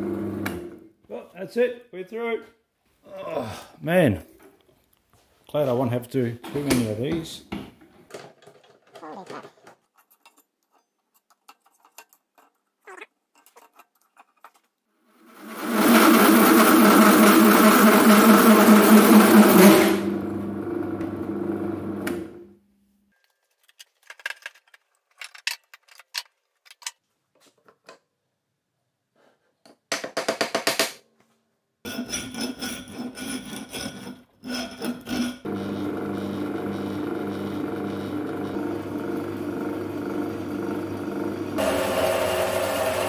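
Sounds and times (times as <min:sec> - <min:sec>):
drill press grinding steel: 0:15.3 - 0:20.4, 0:31.9 - 0:43.0
hand file rasping on steel: 0:31.9 - 0:35.5.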